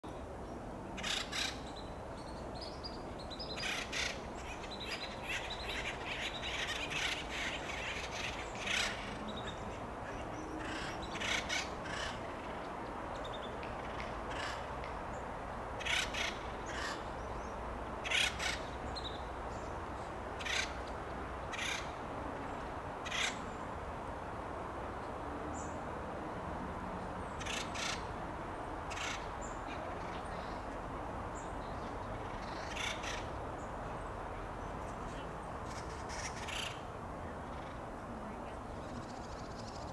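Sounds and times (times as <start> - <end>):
woodpeckers calling harshly: 1.0 - 1.6, 3.4 - 12.5, 13.7 - 14.7, 15.8 - 17.1, 18.0 - 19.0, 20.4 - 20.9, 21.5 - 22.0, 23.0 - 23.4, 27.3 - 28.1, 28.9 - 30.5, 32.2 - 33.4, 35.6 - 36.8.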